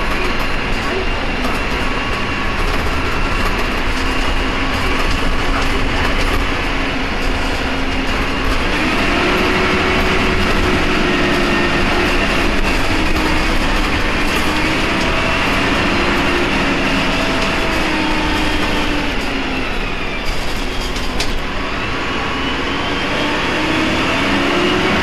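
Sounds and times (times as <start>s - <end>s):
bus diesel engine drone: 0.0s - 25.0s.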